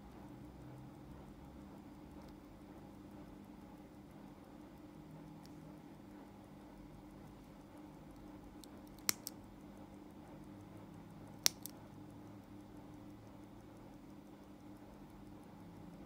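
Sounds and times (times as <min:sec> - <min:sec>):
watch pusher clicks: 0:11.4 - 0:11.8.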